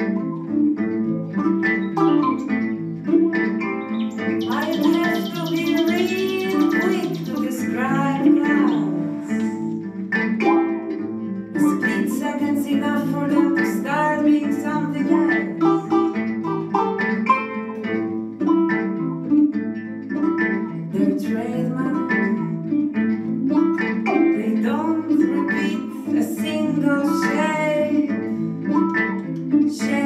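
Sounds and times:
plucked harp-lute melody: 0:00.0 - 0:30.0
woman singing: 0:04.4 - 0:09.8, 0:11.5 - 0:16.2, 0:20.9 - 0:22.8, 0:24.1 - 0:28.5, 0:29.6 - 0:30.0.

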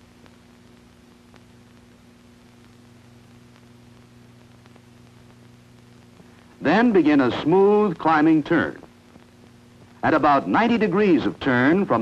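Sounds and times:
background hiss: 0:00.0 - 0:12.0
faint electrical hum: 0:00.0 - 0:12.0
faint clicks: 0:00.2 - 0:06.5.

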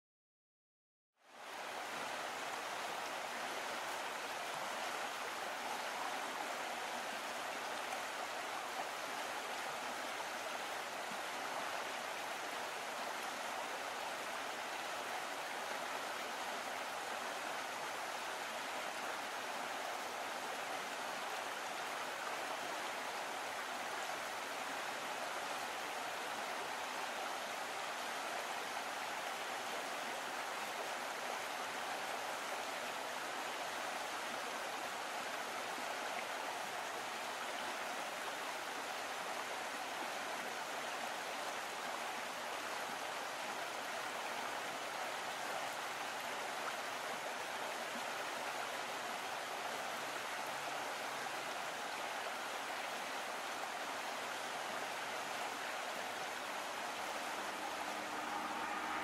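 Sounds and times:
steady rushing noise: 0:56.6 - 0:59.0.

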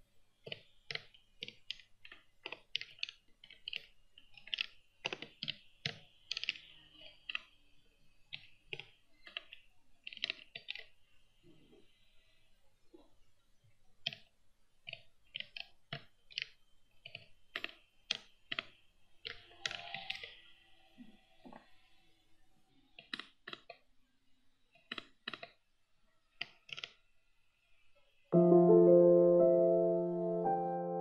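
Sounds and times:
piano music: 0:28.4 - 0:31.0.

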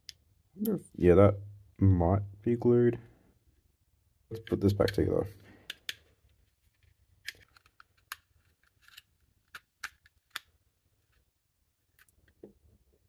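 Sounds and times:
small plastic clicks: 0:07.2 - 0:12.6.

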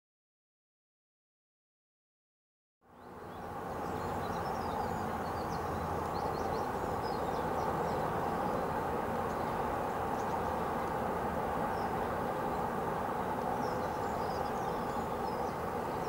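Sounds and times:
small birds chirping: 0:02.9 - 0:16.0.

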